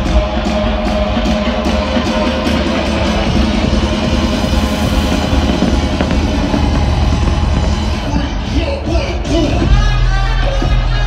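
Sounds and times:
loud music with fast beat: 0:00.0 - 0:11.0.

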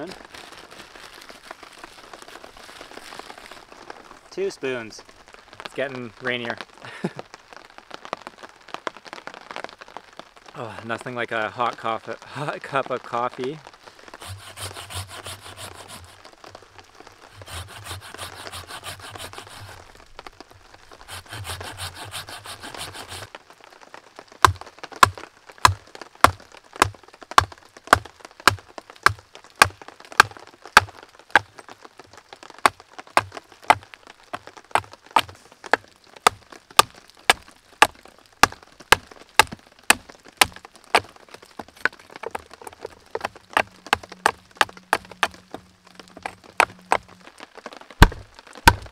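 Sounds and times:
hand saw rasping through branch: 0:14.2 - 0:16.2, 0:17.4 - 0:19.8, 0:21.0 - 0:23.3
machete chopping wood: 0:17.4 - 0:19.8, 0:21.1 - 0:23.3, 0:24.5 - 0:30.9, 0:38.4 - 0:40.6, 0:48.0 - 0:48.9.

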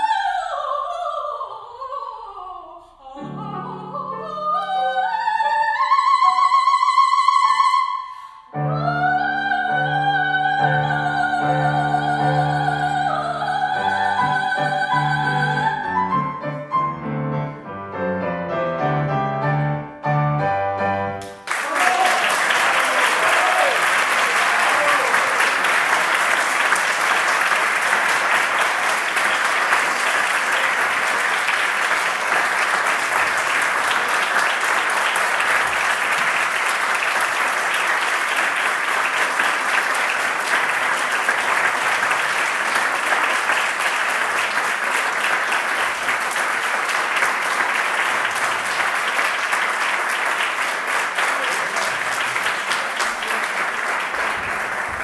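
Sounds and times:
audience applauding: 0:21.2 - 0:55.0.

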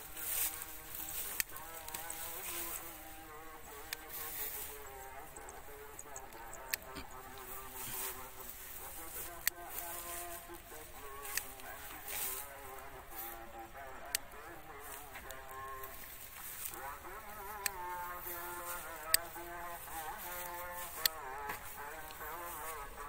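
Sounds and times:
flies buzzing: 0:00.0 - 0:23.0
sharp clicks: 0:03.7 - 0:08.3, 0:11.0 - 0:12.1, 0:13.7 - 0:15.9, 0:16.6 - 0:19.5, 0:20.2 - 0:22.3.

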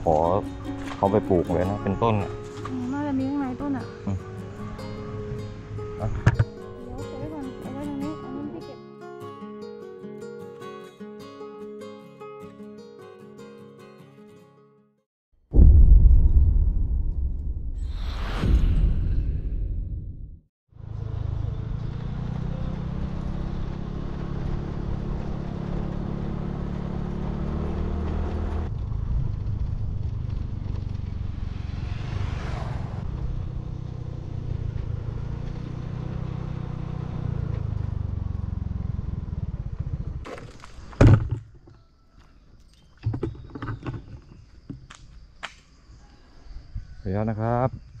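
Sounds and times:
loud thump: 0:06.1 - 0:06.5, 0:15.5 - 0:20.4, 0:40.9 - 0:41.4
vehicle engine running: 0:20.8 - 0:40.3.

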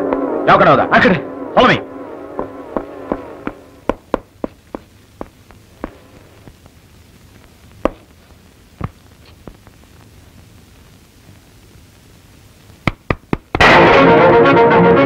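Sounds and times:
faint low hum: 0:00.0 - 0:15.0
sharp footsteps: 0:02.3 - 0:06.7, 0:07.8 - 0:08.1.

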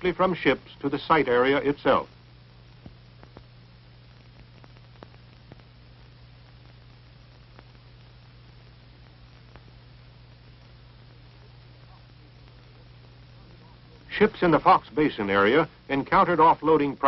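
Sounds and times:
low hum and hiss: 0:00.0 - 0:17.0
faint clicks and pops: 0:02.2 - 0:14.2.

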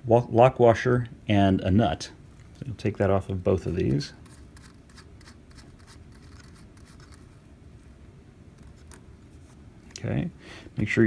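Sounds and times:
low room noise: 0:00.0 - 0:11.0
nut clicking and scratching on thread: 0:03.8 - 0:07.4, 0:08.5 - 0:09.1.

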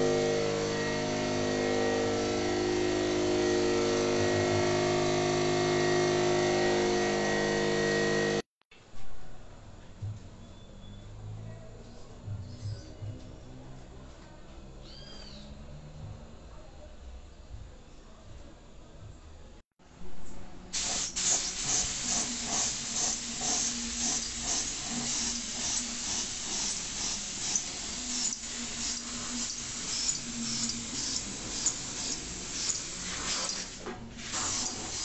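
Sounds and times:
paint spray gun hissing: 0:20.8 - 0:35.0.

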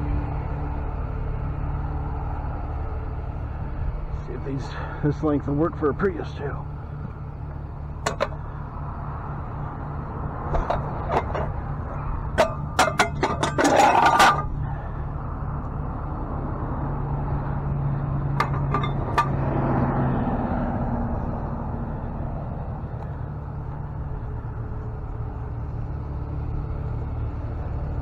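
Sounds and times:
truck engine idling: 0:00.0 - 0:28.0
loud rattle: 0:12.2 - 0:14.8
clanks of equipment handled: 0:12.4 - 0:14.5.

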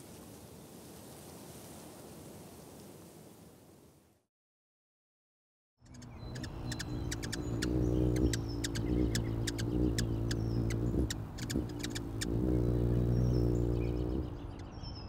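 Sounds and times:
quick high ticks: 0:05.9 - 0:14.3.

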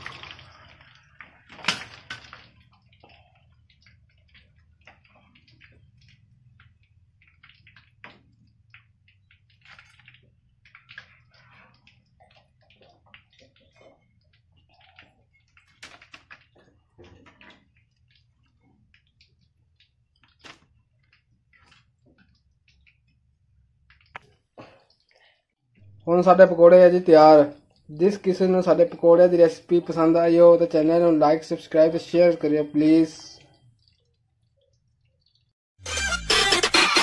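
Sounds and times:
faint clicks and crackles: 0:00.0 - 0:26.1, 0:33.3 - 0:35.6.

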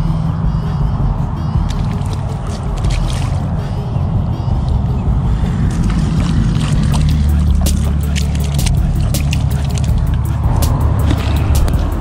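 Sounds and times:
low rumble: 0:00.0 - 0:12.0
sea water splashing on rocks: 0:01.9 - 0:03.4, 0:05.7 - 0:10.1.

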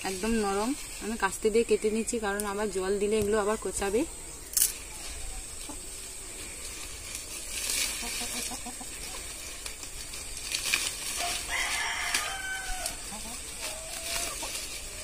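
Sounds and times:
hens clucking: 0:00.1 - 0:15.0
sickle cutting stalks: 0:04.5 - 0:15.0.

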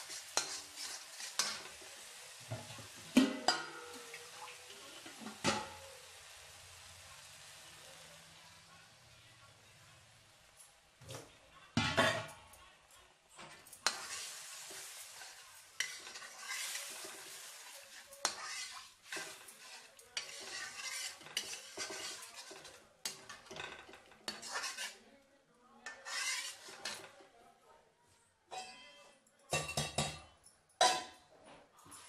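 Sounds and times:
metal skimmer scraping a wok: 0:00.0 - 0:01.8, 0:13.8 - 0:25.0, 0:25.9 - 0:27.1
gravy sizzling in hot oil: 0:00.0 - 0:11.0, 0:13.4 - 0:25.0, 0:25.8 - 0:27.1.

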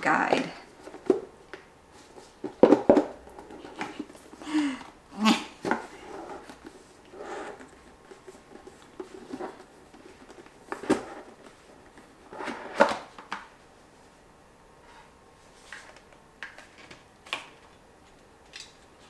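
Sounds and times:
gift box rubbing and scraping: 0:05.8 - 0:09.9, 0:10.8 - 0:11.4.

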